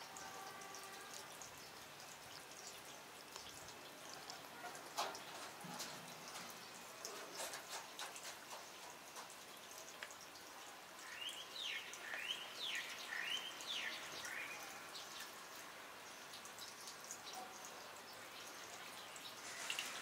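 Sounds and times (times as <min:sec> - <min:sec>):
water dripping on wet ground: 0:00.0 - 0:20.0
bird chirping: 0:11.1 - 0:14.7.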